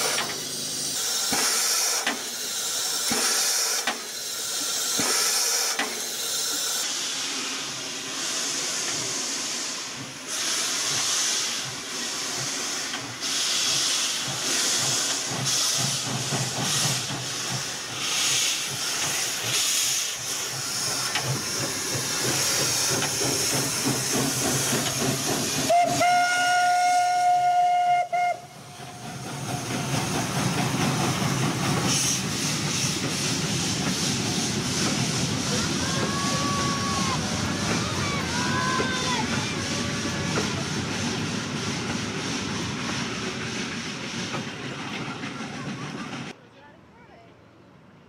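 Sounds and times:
hissing steam: 0.0s - 46.4s
steam locomotive exhaust chuffs: 0.0s - 46.4s
steam whistle blast: 25.6s - 28.7s.

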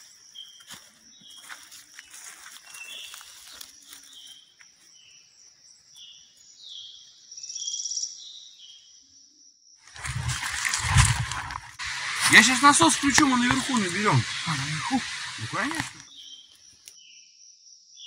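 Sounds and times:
insects chirring: 0.0s - 8.2s, 9.9s - 16.9s
rapid insect trill: 9.3s - 16.6s.

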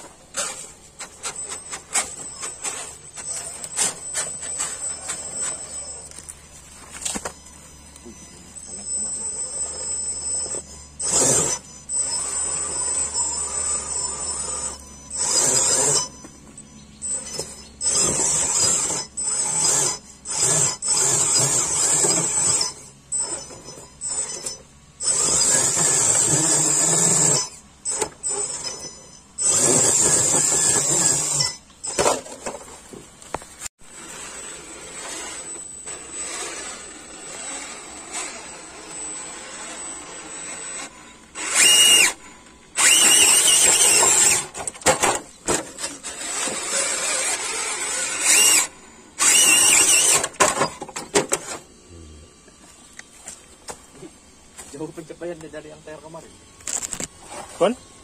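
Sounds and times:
rc car motor and gears whining: 0.0s - 58.0s.

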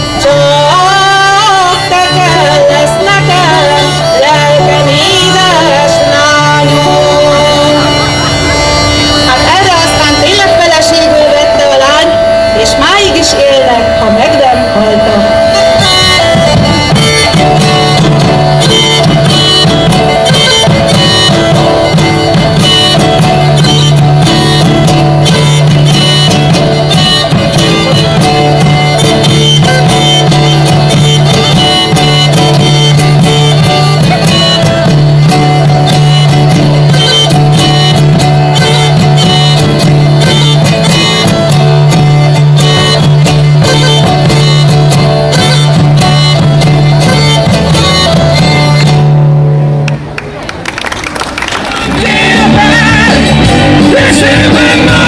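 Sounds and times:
bagpipe melody: 0.0s - 49.8s, 51.9s - 55.0s
bowed fiddle: 0.0s - 49.8s
frame drum beat: 15.3s - 49.4s, 51.9s - 55.0s.

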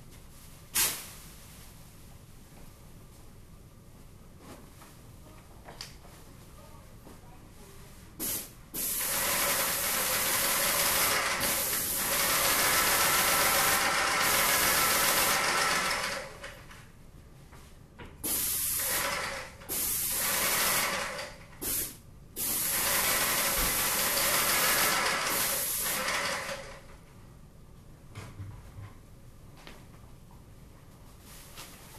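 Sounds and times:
paint spray gun hissing: 8.2s - 15.5s, 18.2s - 20.9s, 21.6s - 26.3s.

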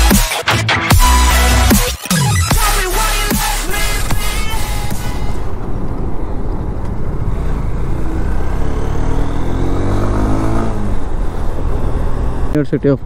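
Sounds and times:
motorcycle engine accelerating: 3.6s - 13.0s
wind and road noise: 3.7s - 13.0s.

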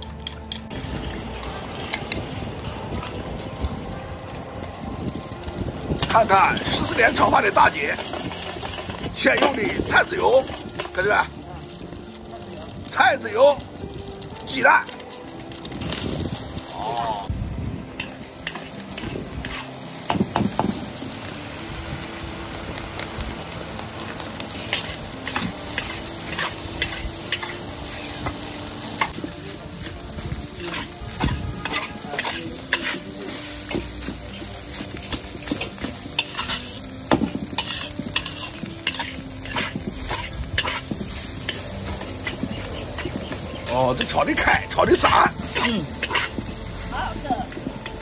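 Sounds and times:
rice sizzling in a wok: 0.0s - 48.0s
metal spatula scraping: 7.8s - 9.8s, 18.0s - 19.8s, 24.5s - 46.6s
spatula clanking against wok: 45.5s - 46.5s.

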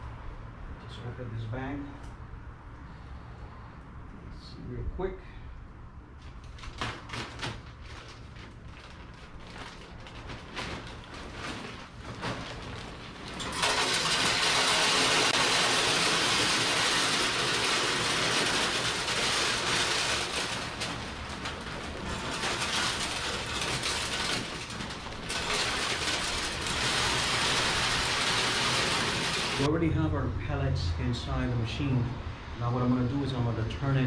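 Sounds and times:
wood pellets pouring rattling: 7.7s - 29.7s.

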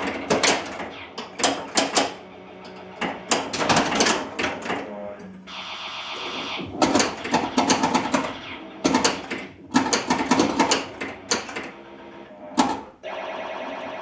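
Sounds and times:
pinball machine mechanical clacks: 0.0s - 5.4s, 6.5s - 11.8s, 12.5s - 13.0s
electronic sound effect: 0.0s - 14.0s.

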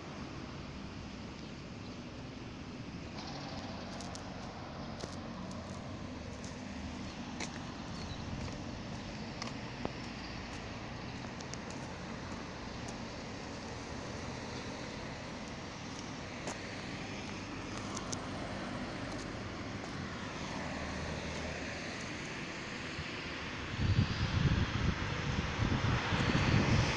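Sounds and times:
distant engine rumble: 1.6s - 22.1s.

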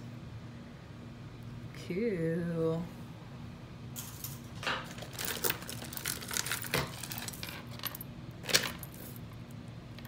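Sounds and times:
jewelry clinking and rattling: 4.0s - 9.2s.

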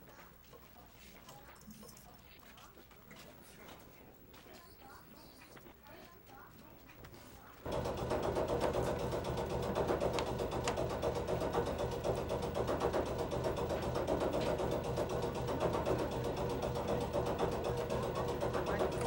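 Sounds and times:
machinery clattering: 7.7s - 19.0s.

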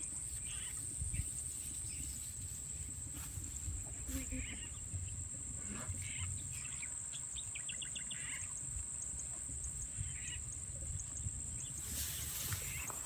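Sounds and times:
wind on microphone: 0.3s - 5.6s, 9.4s - 13.0s.

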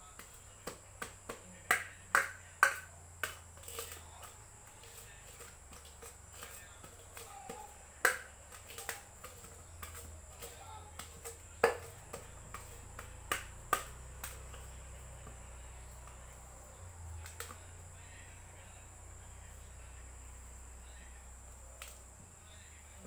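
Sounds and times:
food knocking against steel bowl: 0.2s - 16.5s.

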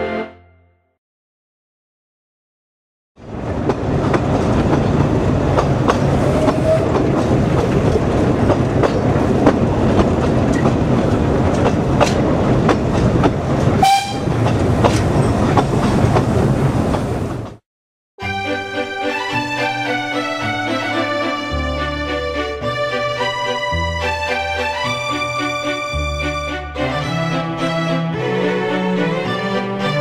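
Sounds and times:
train rumble: 3.2s - 17.6s
train wheels clicking on rails: 3.2s - 17.6s
train whistle blast: 13.8s - 14.3s.

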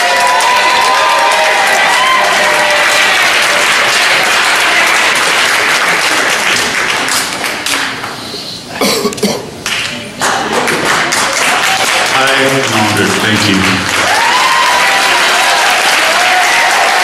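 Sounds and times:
audience applauding: 0.0s - 8.1s, 9.6s - 17.0s
person speaking: 12.2s - 13.8s.

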